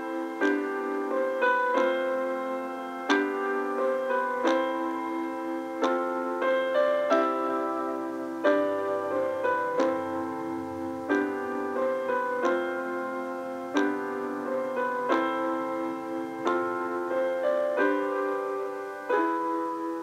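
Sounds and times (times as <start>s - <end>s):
slow piano chords: 0.0s - 20.0s.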